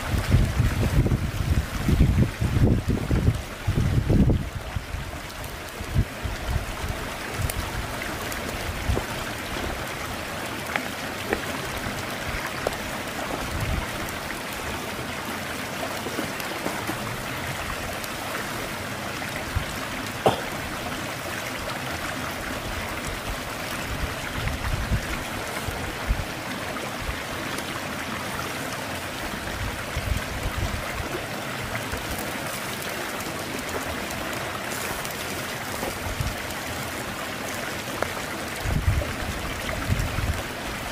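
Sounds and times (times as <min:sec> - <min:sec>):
wood fire crackling and popping: 0:06.9 - 0:14.6, 0:15.9 - 0:18.4
steady rushing hiss: 0:31.4 - 0:37.2.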